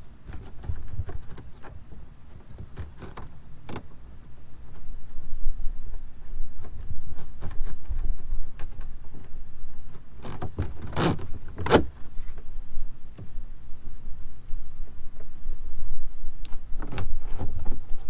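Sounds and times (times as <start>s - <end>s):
plastic clicks knocks and rubs: 0.2s - 4.9s, 5.9s - 12.5s.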